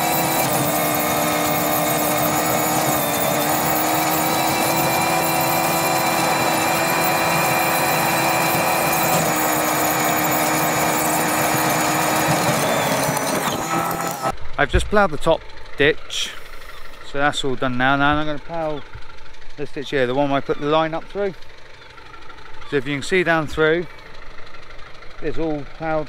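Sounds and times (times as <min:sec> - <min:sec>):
tractor engine drone: 0:00.0 - 0:26.0.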